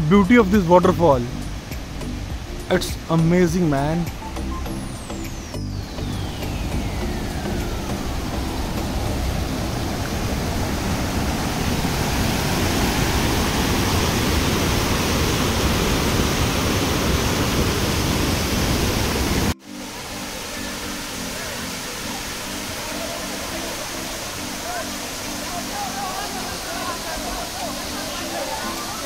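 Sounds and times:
waterfall roaring: 0.0s - 29.0s
falling tone: 1.4s - 15.3s.

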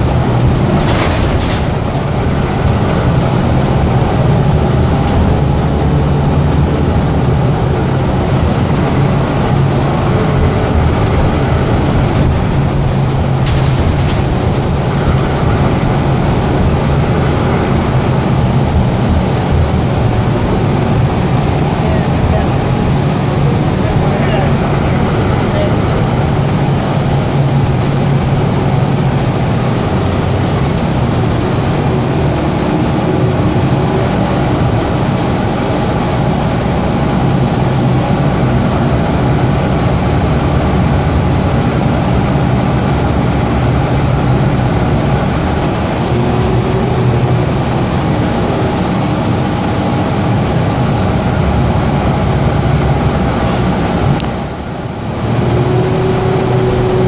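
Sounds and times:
air conditioning running: 0.0s - 57.0s
bus drivetrain hum: 0.0s - 57.0s
road noise: 0.0s - 57.0s.

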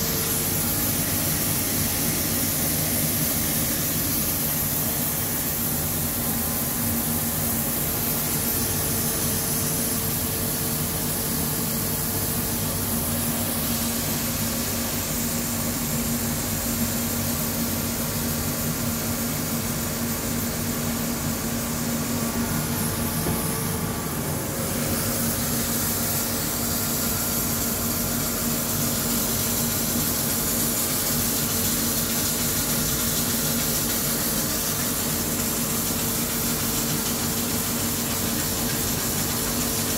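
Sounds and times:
coolant spraying hiss: 0.0s - 39.9s
machine hum: 21.3s - 28.4s.

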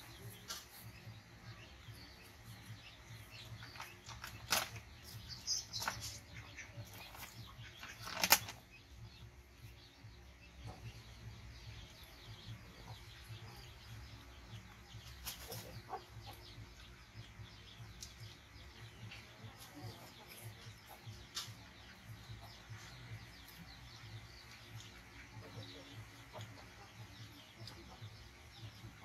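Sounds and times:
chickens clucking: 0.0s - 29.0s
small birds chirping: 0.0s - 29.0s
rustles and clicks of food handling: 2.6s - 8.8s.

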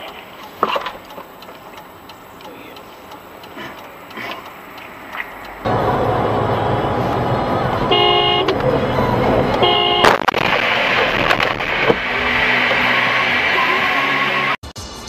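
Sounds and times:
car road noise: 0.0s - 15.0s
car horn blasts: 6.4s - 10.3s
car crash: 8.5s - 15.0s.

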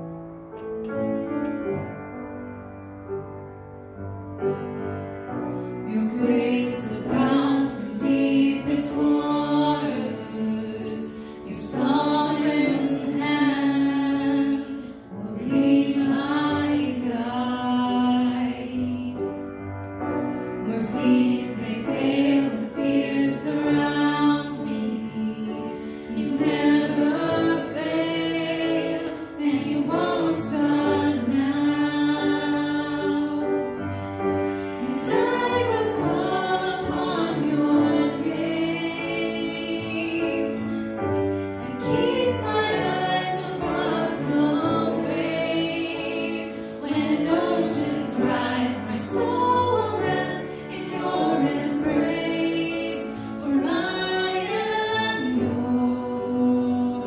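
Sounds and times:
instrumental accompaniment: 0.0s - 8.4s
voices singing worship song: 5.6s - 57.0s.

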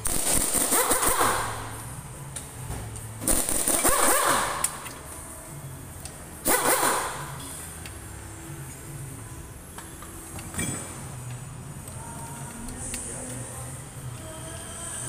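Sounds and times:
pneumatic impact wrench: 0.0s - 1.8s, 3.2s - 5.0s, 6.4s - 7.4s.

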